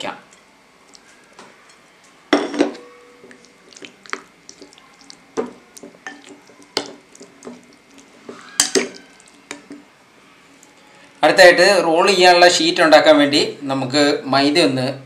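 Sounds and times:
spoon stirring thick marinade: 0:02.7 - 0:09.9
spoon clinking against glass: 0:06.0 - 0:06.4, 0:08.6 - 0:09.0.

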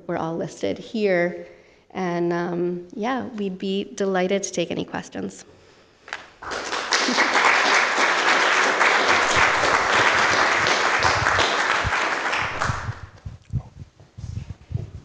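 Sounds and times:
audience applauding: 0:06.4 - 0:13.2.

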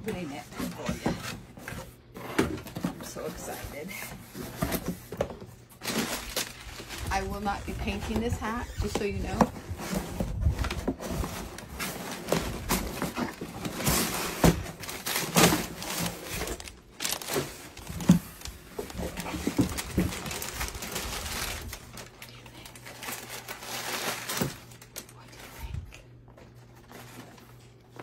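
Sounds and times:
wrapping paper rustling: 0:05.6 - 0:25.8.

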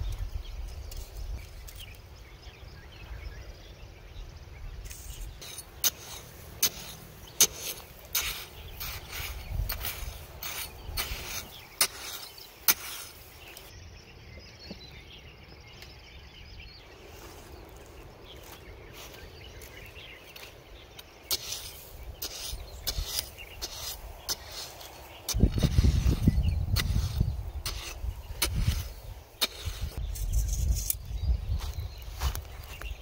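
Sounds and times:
metal blade chopping into gravel: 0:04.9 - 0:13.7, 0:21.3 - 0:31.0.

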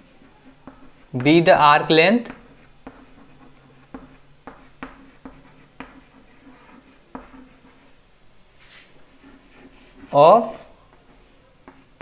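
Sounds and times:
chalk tapping on board: 0:00.0 - 0:01.4, 0:02.2 - 0:07.8, 0:10.9 - 0:12.0
chalk scratching on chalkboard: 0:00.0 - 0:01.5, 0:02.2 - 0:08.0, 0:08.6 - 0:12.0.

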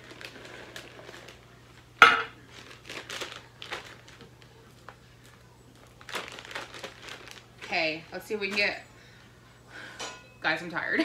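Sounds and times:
plastic bag rustling: 0:00.0 - 0:09.2.

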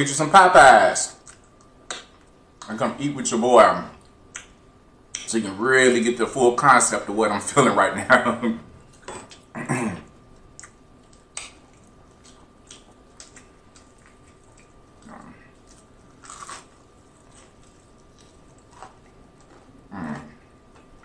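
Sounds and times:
crunchy chewing of fried chicken: 0:10.4 - 0:21.0.

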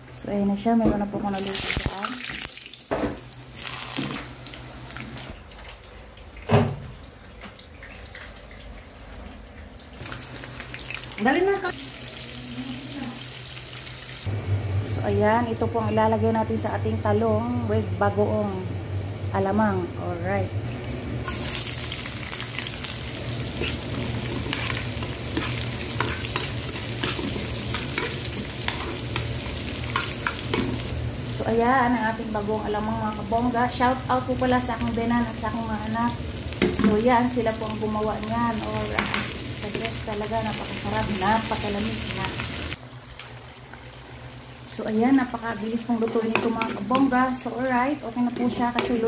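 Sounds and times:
eggplant sizzling in oil: 0:01.2 - 0:05.6, 0:10.0 - 0:14.3, 0:20.7 - 0:49.0.

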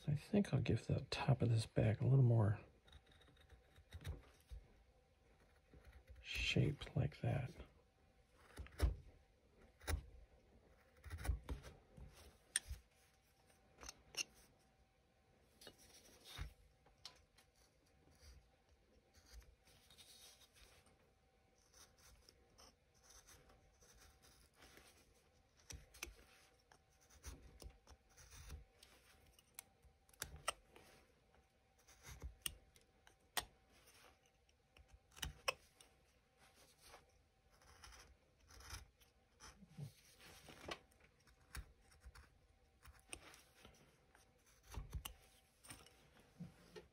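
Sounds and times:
carving blade paring wood: 0:02.7 - 0:04.6, 0:08.4 - 0:11.8, 0:31.7 - 0:35.8, 0:37.5 - 0:39.6, 0:41.2 - 0:43.4, 0:44.4 - 0:45.9.

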